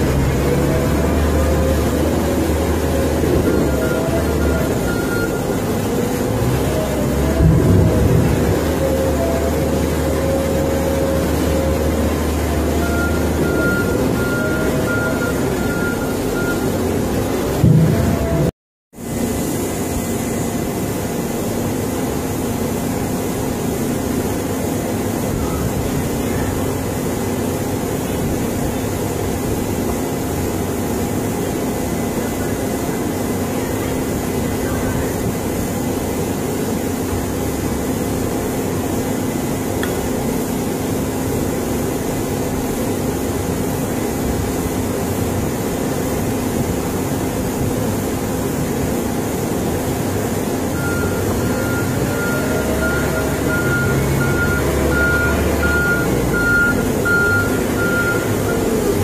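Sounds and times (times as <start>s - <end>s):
diesel engine humming: 0.0s - 59.0s.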